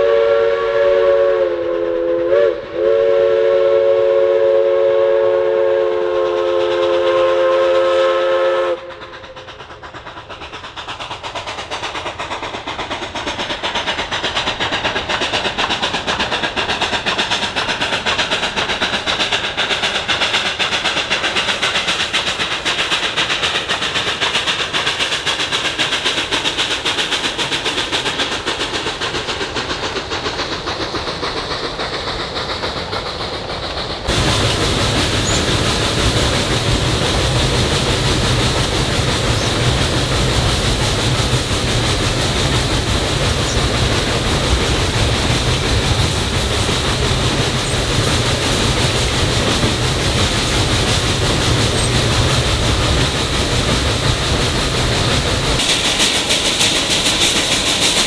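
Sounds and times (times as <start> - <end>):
steam locomotive chime whistle: 0.0 - 9.2
locomotive exhaust beats: 0.0 - 58.0.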